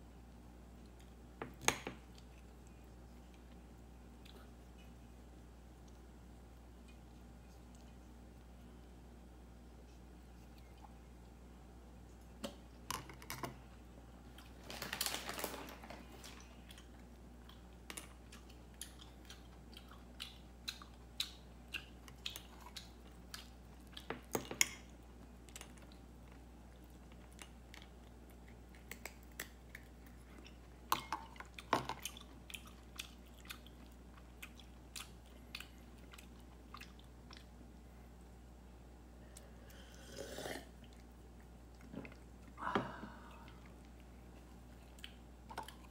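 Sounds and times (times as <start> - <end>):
cat chewing: 2.0 - 14.6, 16.0 - 38.4.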